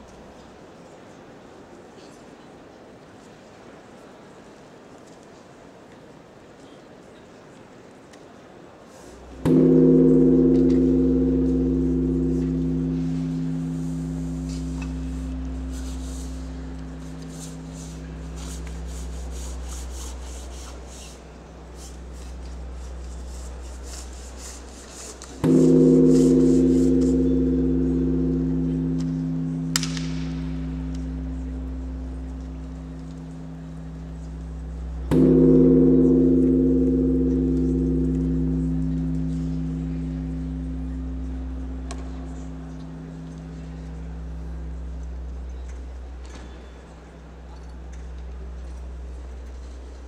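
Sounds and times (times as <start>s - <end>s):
large gong ringing: 9.2s - 50.0s.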